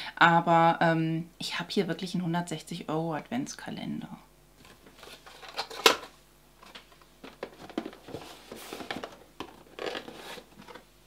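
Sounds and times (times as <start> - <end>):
taps and rustles of packaging: 4.6 - 10.9.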